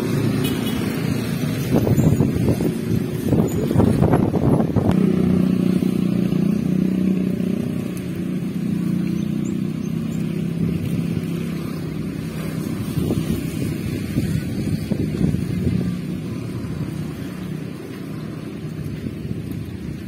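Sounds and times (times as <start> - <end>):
engine humming steadily: 0.0 - 20.0.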